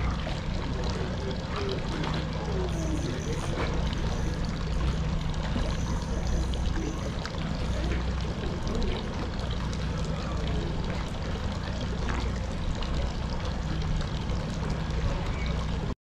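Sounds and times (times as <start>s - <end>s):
low rumble: 0.0s - 15.8s
water lapping against hull: 0.0s - 16.0s.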